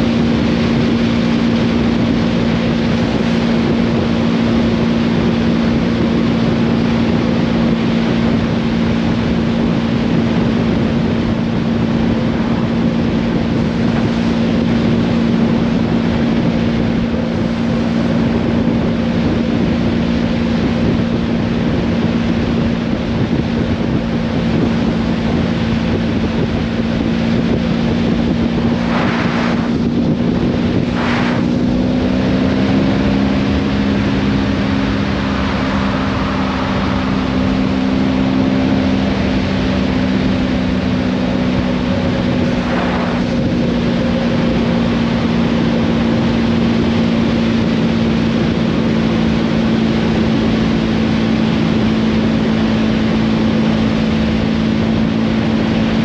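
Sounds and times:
wind rushing: 0.0 - 55.6
motorcycle engine humming: 0.0 - 56.0
short rushes of noise: 28.3 - 32.1, 42.3 - 44.0.

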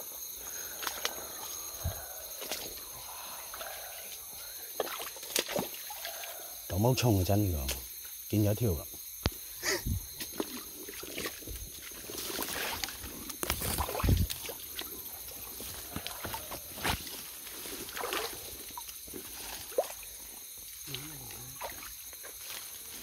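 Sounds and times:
night insects trilling: 0.0 - 23.0
water sloshing: 3.5 - 6.4, 10.2 - 16.7, 17.7 - 20.3.

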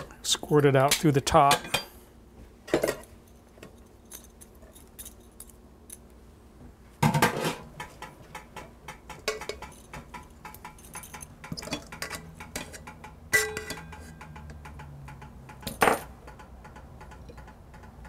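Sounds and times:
metal kitchenware clinking: 7.1 - 18.0.

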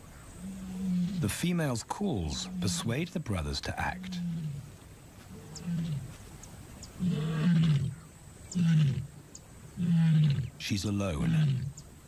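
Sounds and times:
lioness moaning calls: 0.2 - 1.4, 2.2 - 3.1, 3.8 - 4.7, 5.3 - 6.2, 7.0 - 9.1, 9.8 - 10.5.

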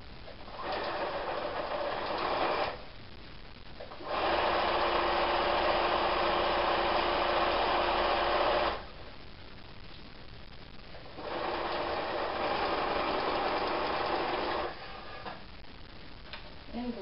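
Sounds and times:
sewing machine stitching: 0.5 - 2.8, 4.0 - 8.8, 11.2 - 15.3.

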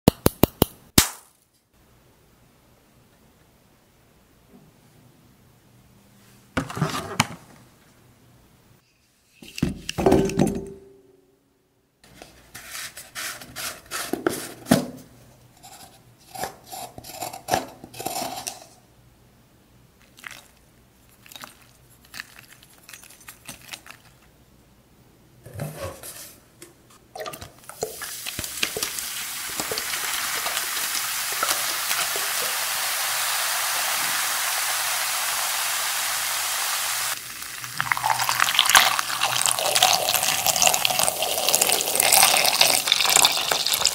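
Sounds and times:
vinegar fizzing hiss: 27.7 - 43.9.

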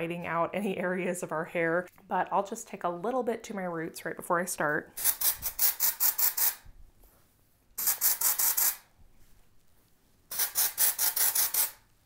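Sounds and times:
aerosol spray hissing: 7.8 - 8.8.

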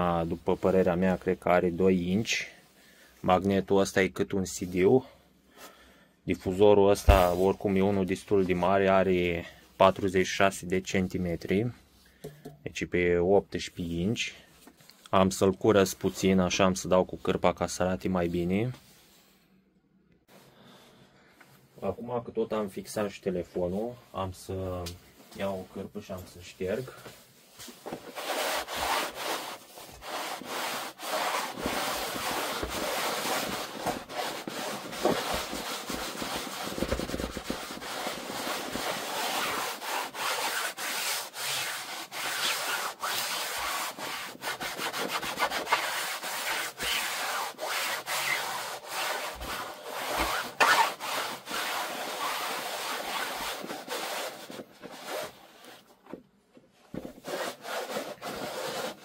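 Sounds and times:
cloth rubbing on loudspeaker cone: 7.0 - 9.3, 25.1 - 55.9, 57.1 - 59.0.

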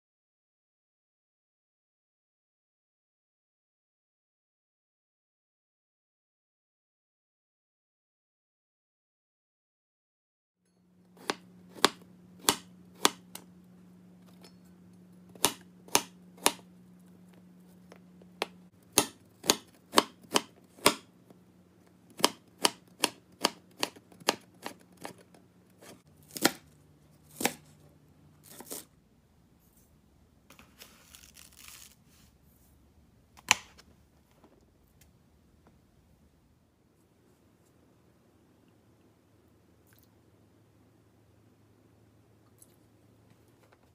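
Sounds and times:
knife chopping on cutting board: 11.2 - 13.4, 15.3 - 16.7, 18.4 - 21.1, 22.1 - 25.2, 27.3 - 27.7.

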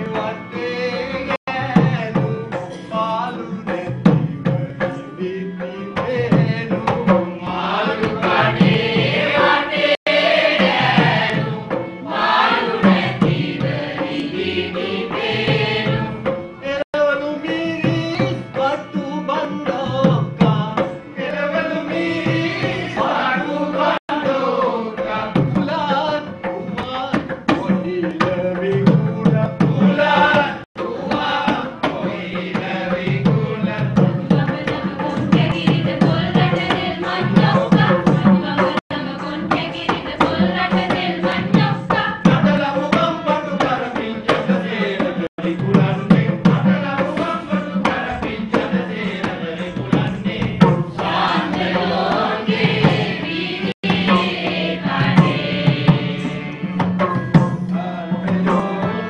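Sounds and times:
man singing: 0.0 - 8.5, 16.6 - 35.3, 42.3 - 50.8, 57.8 - 59.0
drums: 0.0 - 59.0.

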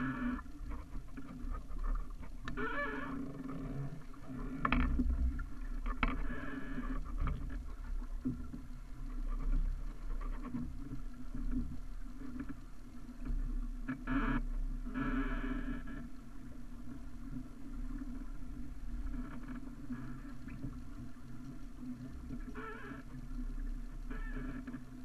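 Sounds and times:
creaky squeaks from boat rig: 0.0 - 5.1, 22.4 - 23.2, 24.0 - 24.9
wind rumble on microphone: 0.0 - 12.2
water splashing along hull: 0.0 - 25.0.

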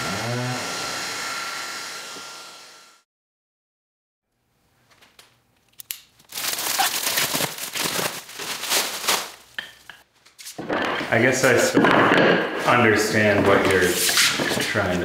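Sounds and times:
plastic wrap crinkling and tearing: 6.2 - 9.6.

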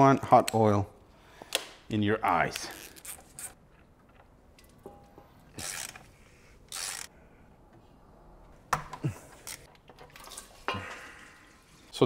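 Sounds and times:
ratchet wrench ratcheting: 5.5 - 6.1, 6.7 - 7.1.

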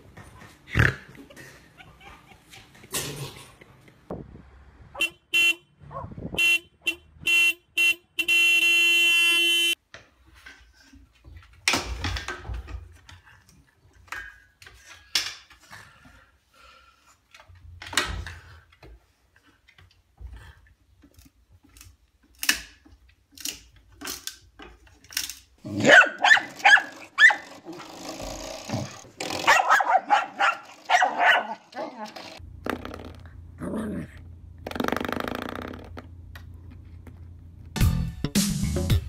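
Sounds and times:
car horn toots and blast: 5.0 - 9.8.

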